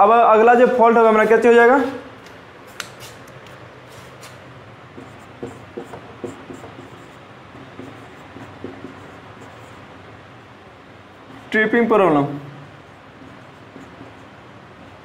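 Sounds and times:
marker scratching on whiteboard: 0:03.9 - 0:10.2, 0:12.7 - 0:15.0.

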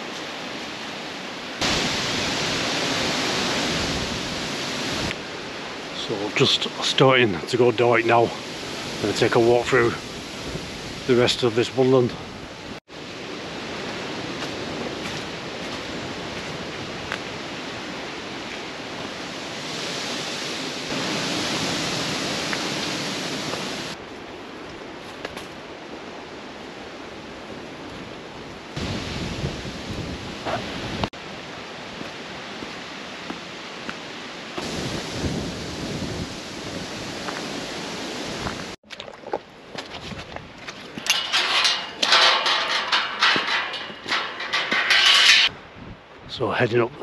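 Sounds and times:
wind buffeting microphone: 0:01.6 - 0:05.6, 0:08.2 - 0:11.1, 0:27.1 - 0:31.1, 0:34.6 - 0:38.8, 0:40.0 - 0:46.4.

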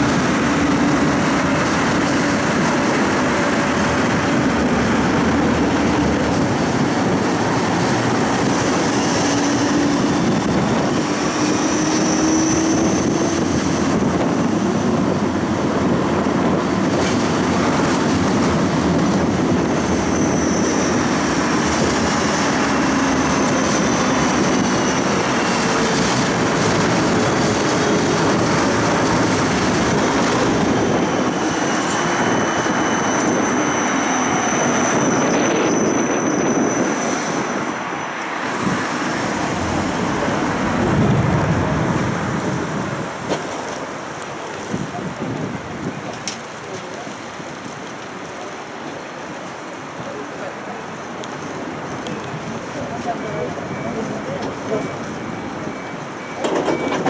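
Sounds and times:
tram wheels and motors rumbling: 0:00.0 - 0:57.0
high-pitched wheel squeal: 0:11.2 - 0:13.5, 0:19.8 - 0:21.7, 0:31.2 - 0:38.4.

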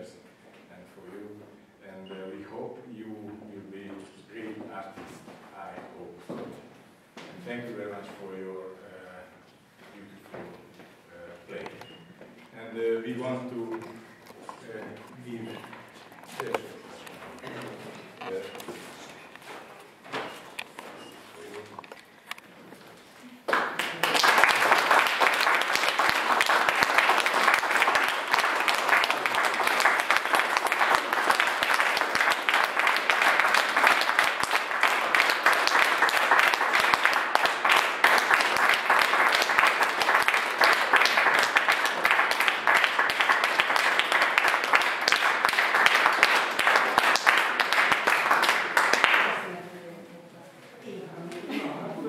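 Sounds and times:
audience applause: 0:23.5 - 0:49.4.

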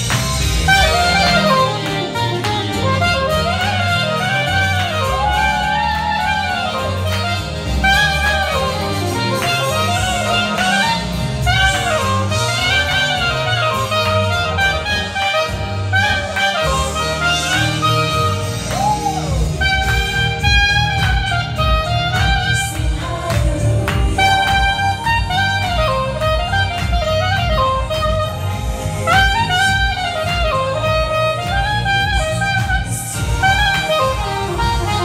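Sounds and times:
backing track with bass and beat: 0:00.0 - 0:35.0
saxophone jazz melody: 0:00.0 - 0:35.0.

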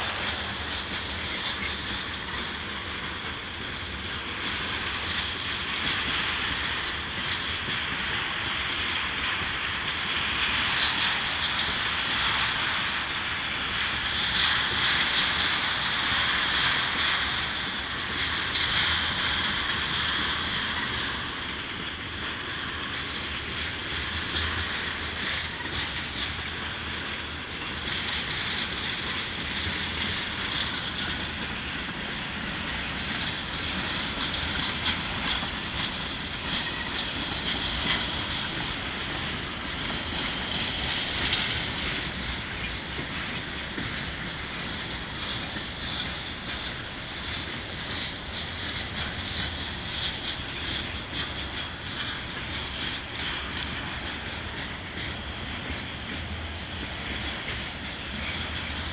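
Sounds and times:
wheels clacking on rails: 0:00.0 - 0:58.9.

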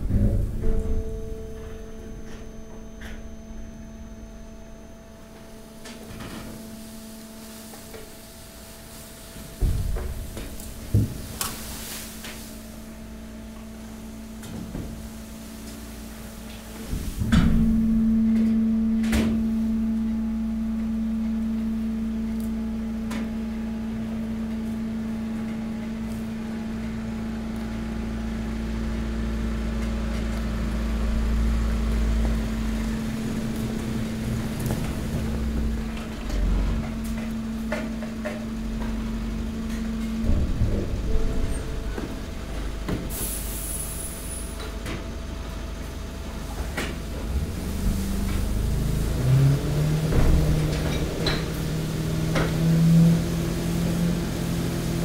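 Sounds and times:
loud hydraulic pump clunk: 0:00.0 - 0:04.2, 0:09.4 - 0:12.6, 0:16.5 - 0:19.8, 0:32.2 - 0:45.1, 0:46.4 - 0:53.2
hydraulic pump humming: 0:00.0 - 0:55.0.

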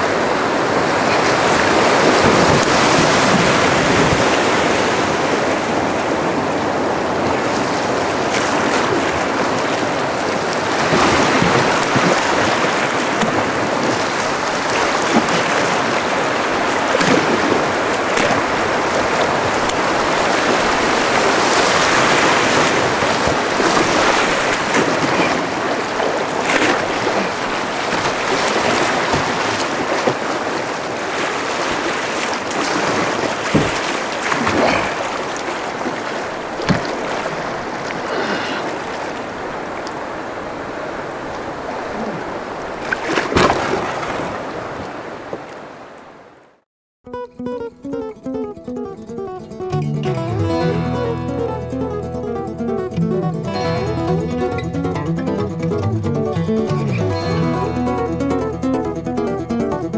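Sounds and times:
river rapids rushing: 0:00.0 - 0:42.9
sharp water splashes: 0:07.4 - 0:40.1, 0:41.5 - 0:45.4.

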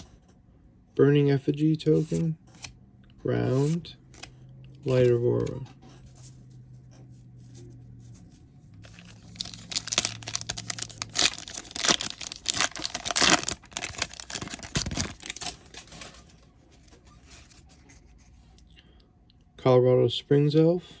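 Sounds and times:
foil wrapper tearing and crinkling: 0:08.9 - 0:16.0.

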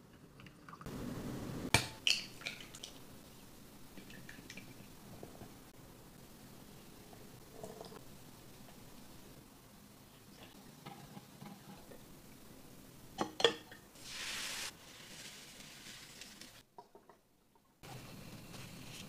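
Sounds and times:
short hiss: 0:14.0 - 0:16.6.

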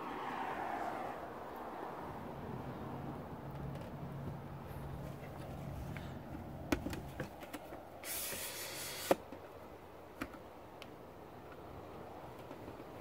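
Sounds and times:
phone handling clicks and taps: 0:05.3 - 0:07.8, 0:10.1 - 0:11.0
brief hiss: 0:08.0 - 0:09.2.

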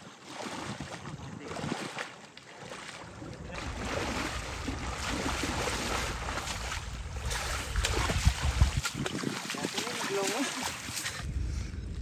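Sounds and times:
water sloshing and splashing: 0:00.0 - 0:11.3
sharp splash or knock: 0:03.8 - 0:11.1.

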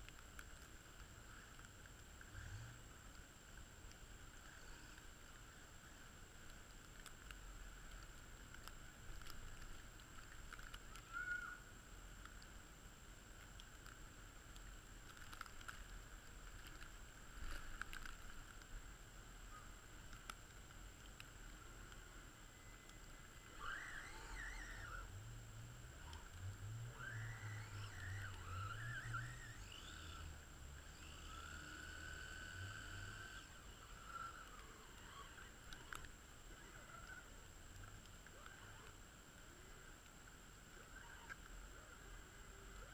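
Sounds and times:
faint steady hiss: 0:00.0 - 0:42.9
toy car electric motor whine: 0:22.5 - 0:25.2, 0:26.8 - 0:36.0.

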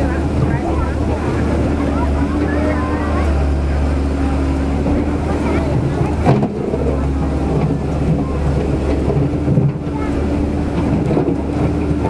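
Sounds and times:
excavator diesel engine running: 0:00.0 - 0:12.0
water rushing over weir: 0:00.0 - 0:12.0.

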